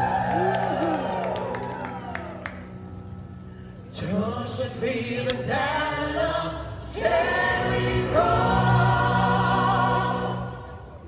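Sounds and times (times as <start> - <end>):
choir singing in harmony: 4.0 - 11.0.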